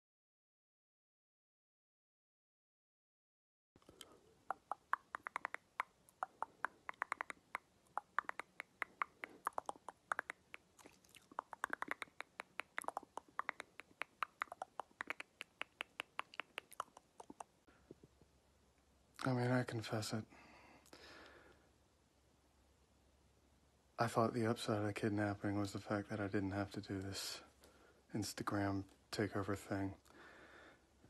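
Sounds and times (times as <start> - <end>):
mouth clicks: 3.8 - 17.6.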